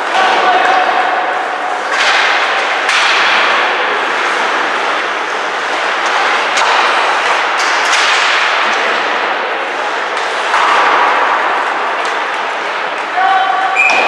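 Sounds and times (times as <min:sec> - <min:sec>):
sticks cracking on puck: 0:05.8 - 0:09.0.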